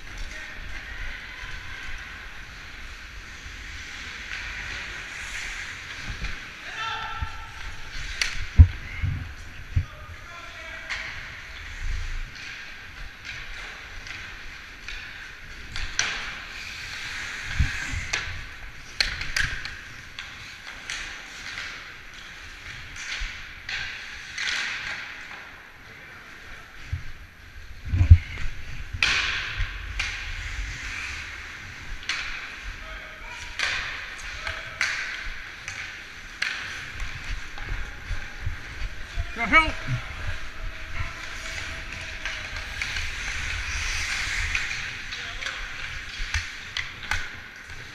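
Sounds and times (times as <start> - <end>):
skate blades scraping on ice: 1.5 - 6.6, 11.2 - 24.4, 33.4 - 47.9.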